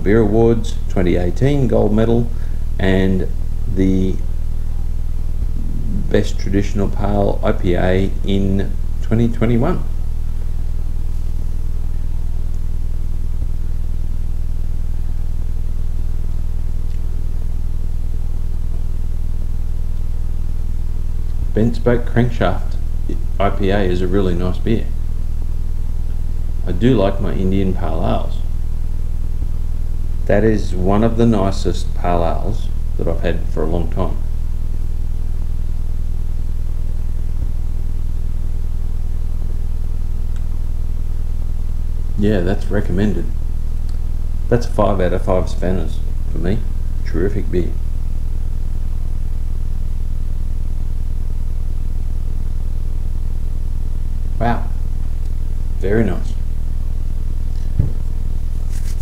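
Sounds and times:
steady low hum: 0:00.0 - 0:59.0
faint tap: 0:57.7 - 0:58.0.

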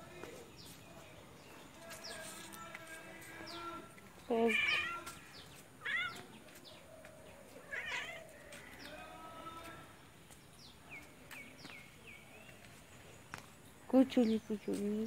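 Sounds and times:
cat meowing: 0:04.5 - 0:05.1, 0:05.8 - 0:06.2, 0:07.6 - 0:08.2.

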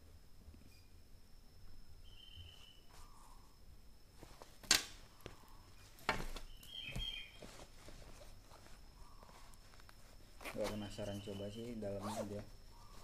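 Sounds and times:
fabric rustling: 0:04.1 - 0:13.0.

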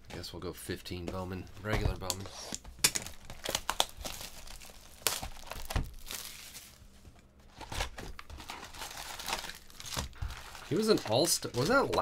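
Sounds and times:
plastic shrink wrap tearing: 0:02.0 - 0:06.8, 0:07.5 - 0:12.0.

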